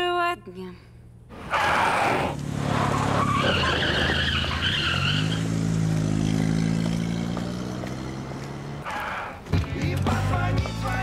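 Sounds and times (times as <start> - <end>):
car tyres squealing: 1.3 - 6.0, 8.6 - 9.5
car engine revving: 1.3 - 9.5.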